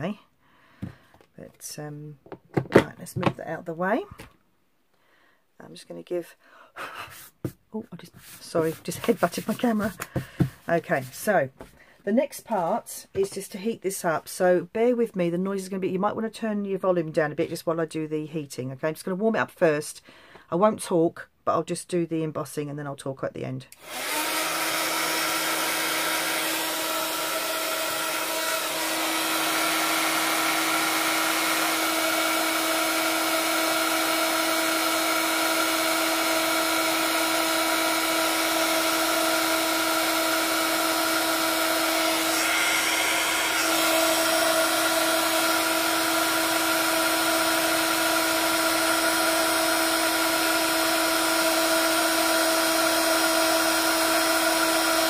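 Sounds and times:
heat tool blowing: 23.7s - 55.0s.

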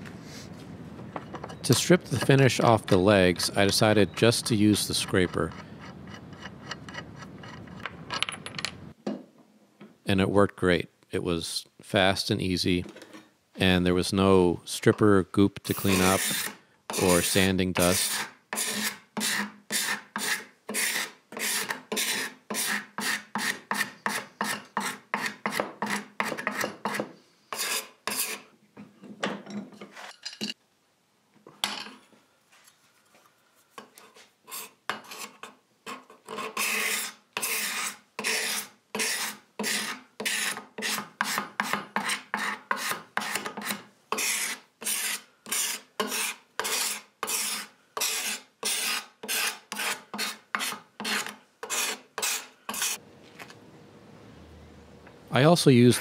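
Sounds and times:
scraper scraping wood: 15.7s - 17.2s, 17.8s - 28.5s, 33.9s - 53.0s.

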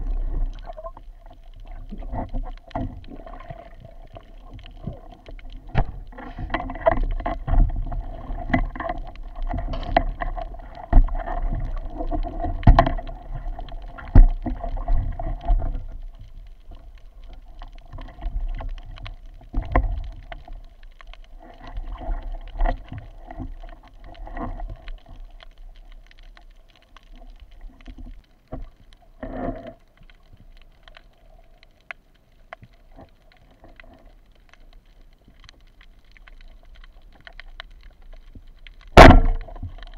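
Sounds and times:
steady underwater hum: 0.0s - 39.9s
muffled underwater knocks and clatter: 5.6s - 16.0s.

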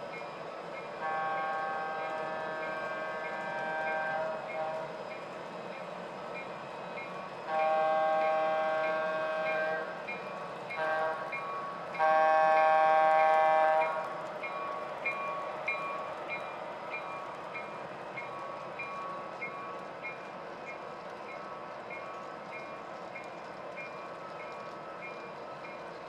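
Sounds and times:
train rolling on track: 0.0s - 26.0s
locomotive horn blast: 1.0s - 4.9s, 7.5s - 9.9s, 10.8s - 11.4s, 12.0s - 14.0s.

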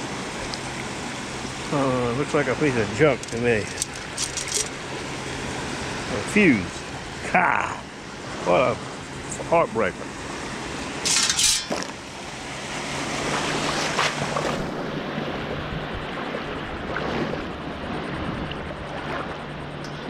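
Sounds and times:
choppy surf: 0.0s - 11.1s
water sloshing around legs: 2.8s - 5.3s
shells clattering in metal scoop: 3.1s - 4.8s, 11.0s - 11.9s.

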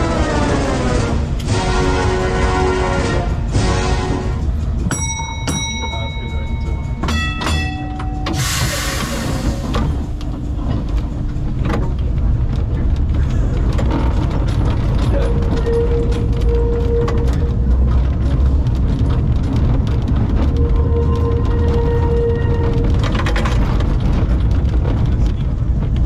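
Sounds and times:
tram rumbling along rails: 0.0s - 26.0s
wheel clicks and rattles: 9.4s - 26.0s.

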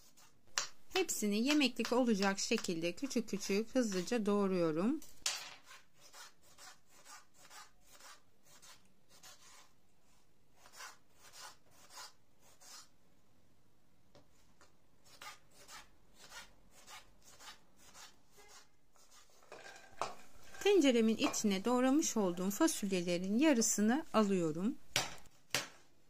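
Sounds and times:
knife cutting tomato on board: 5.6s - 9.7s.

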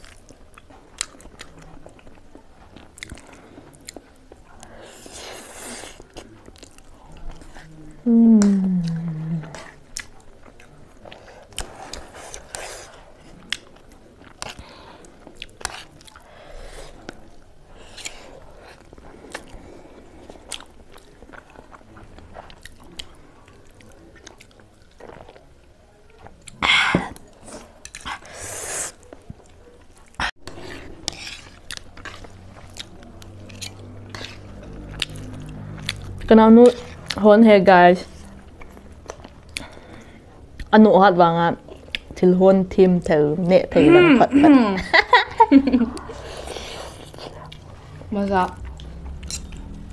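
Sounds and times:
people chewing noodles: 0.0s - 49.9s.

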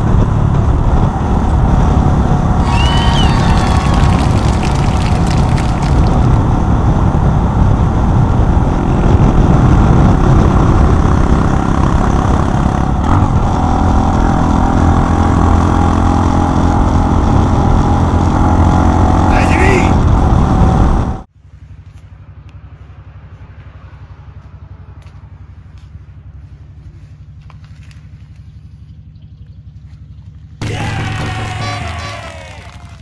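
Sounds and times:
wind rush on microphone: 0.0s - 15.0s, 19.3s - 21.3s
motorcycle engine running: 0.0s - 33.0s.

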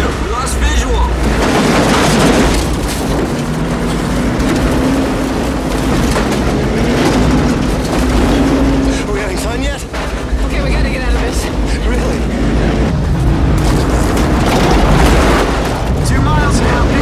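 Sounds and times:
heavy low rumble: 0.0s - 17.0s
steady low drone: 0.0s - 17.0s
storm noise: 0.0s - 17.0s
truck driven over rough ground: 0.0s - 17.0s.

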